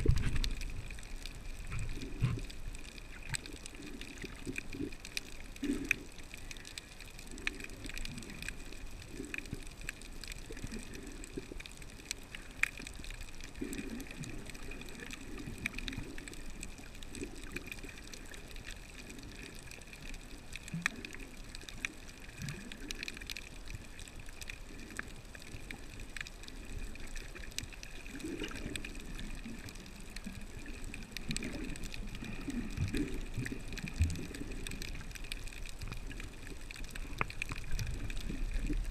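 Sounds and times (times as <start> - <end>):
water moving against camera housing: 0.0 - 0.9, 1.5 - 2.7
small scattered clicks: 0.0 - 38.9.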